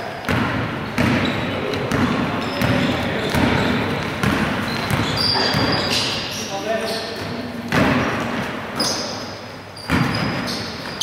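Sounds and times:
basketball bouncing on wooden floor: 0.2 - 6.0, 9.8 - 11.0.

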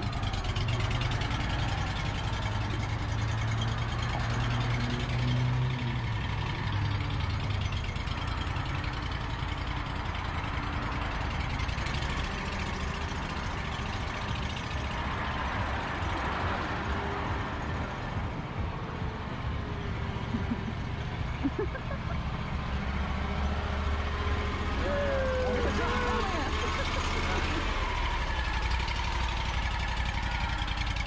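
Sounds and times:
mower engine running: 20.3 - 31.0.

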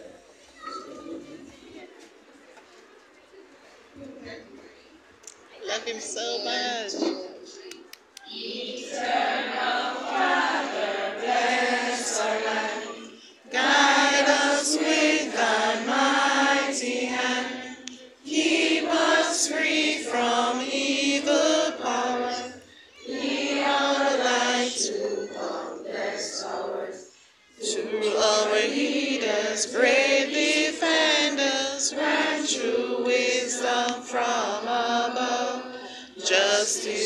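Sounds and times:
children's choir singing: 8.3 - 37.0.

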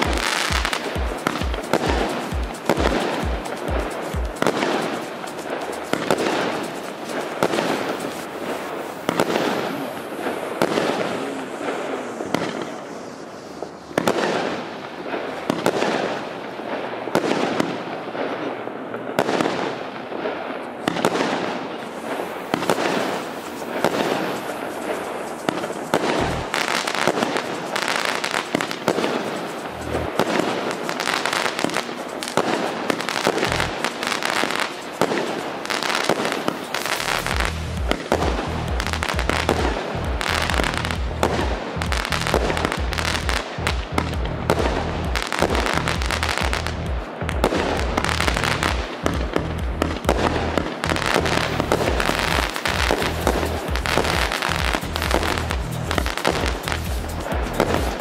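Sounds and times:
firework aerial bursts: 0.0 - 58.0
firework launch pops: 5.6 - 14.7, 20.9 - 29.6
deep firework thumps: 37.1 - 58.0.

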